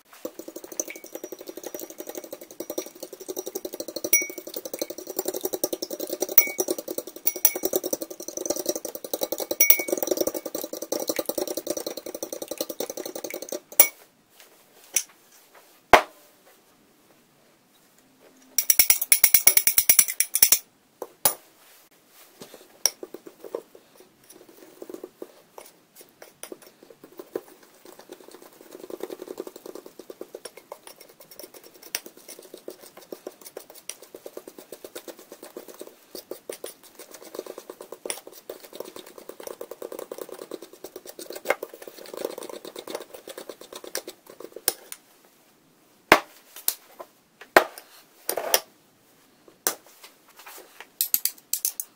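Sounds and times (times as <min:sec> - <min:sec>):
spoon stirring batter in a bowl: 0:00.0 - 0:14.0, 0:18.6 - 0:20.6, 0:22.4 - 0:45.0.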